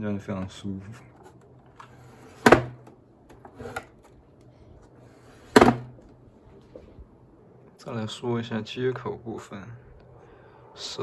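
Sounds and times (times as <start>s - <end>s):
monitor stand knocks: 2.4s - 2.9s, 5.5s - 6.0s.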